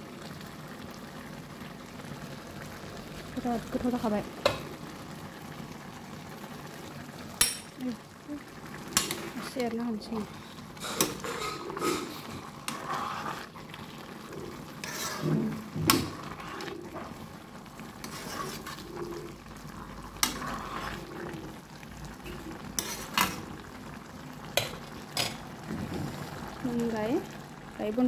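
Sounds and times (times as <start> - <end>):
curry sizzling: 0.0 - 28.0
metal spoon scraping pan: 10.8 - 13.6, 14.8 - 17.2, 18.0 - 19.3, 20.2 - 21.3, 22.8 - 23.5.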